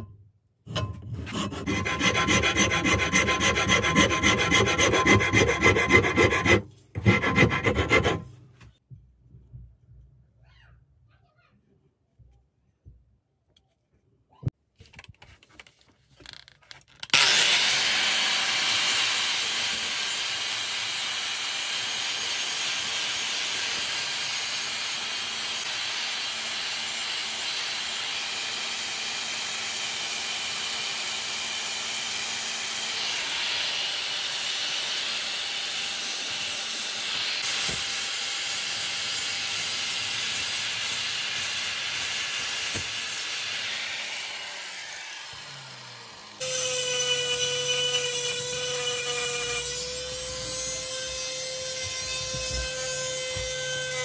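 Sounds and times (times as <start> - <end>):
angle grinder grinding wood: 0.7 - 8.3, 17.1 - 20.1, 29.7 - 54.0.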